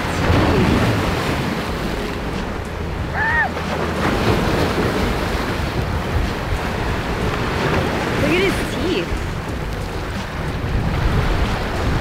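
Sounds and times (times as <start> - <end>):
waves breaking on shore: 0.0 - 12.0
wind buffeting microphone: 0.0 - 12.0.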